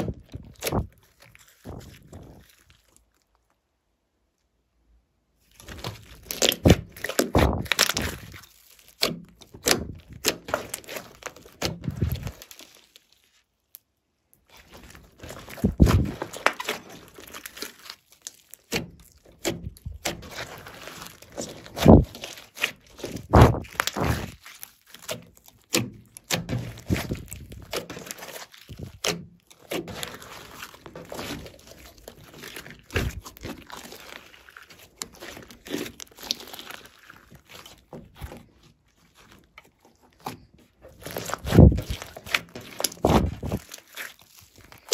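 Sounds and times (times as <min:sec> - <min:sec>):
slime squelching: 0:00.0 - 0:04.4, 0:05.3 - 0:44.9
slime crackling pops: 0:05.6 - 0:12.6, 0:15.2 - 0:38.4, 0:41.0 - 0:44.9.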